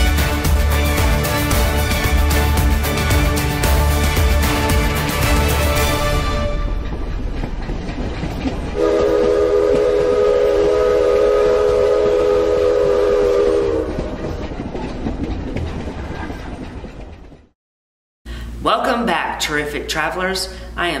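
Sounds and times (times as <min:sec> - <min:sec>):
train rolling along: 0:00.0 - 0:17.6
train whistle blast: 0:08.8 - 0:14.1.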